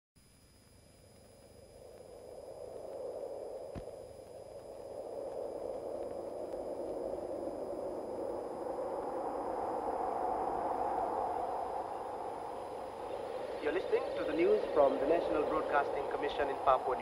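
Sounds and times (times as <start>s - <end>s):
radio recording hiss: 0.2s - 17.0s.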